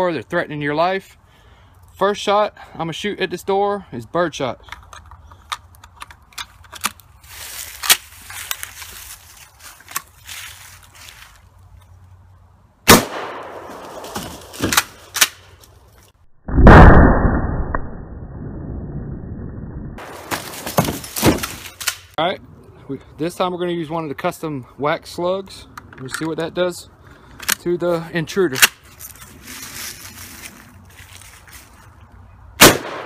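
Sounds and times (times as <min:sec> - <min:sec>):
shotgun shell loading clicks: 0:04.7 - 0:07.1
shotgun shot: 0:12.9 - 0:14.2, 0:16.5 - 0:17.8, 0:32.6 - 0:33.0.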